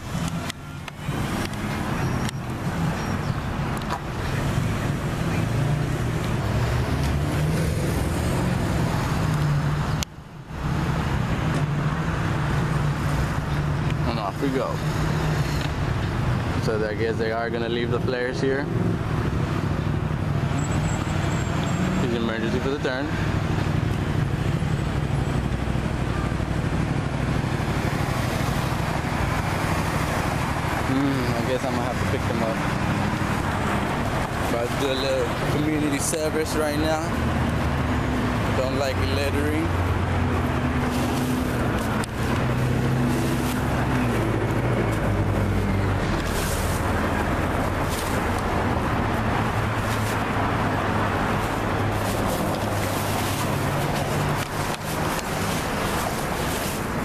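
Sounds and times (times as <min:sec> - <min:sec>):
continuous traffic hiss: 0:00.0 - 0:57.0
road noise: 0:00.0 - 0:57.0
vehicle engines humming: 0:00.0 - 0:57.0.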